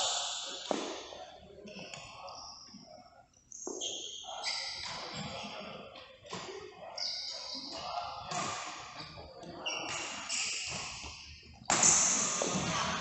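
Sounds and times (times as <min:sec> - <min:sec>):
shoes squeaking on court floor: 0:03.5 - 0:13.0
racket hitting shuttlecock: 0:11.7 - 0:12.6.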